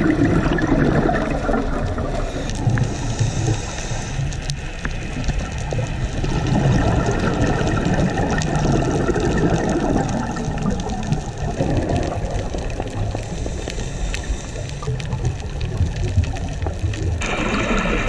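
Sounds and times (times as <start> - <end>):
muffled underwater rushing: 0.0 - 18.0
faint clicks: 2.2 - 6.2, 8.3 - 17.2.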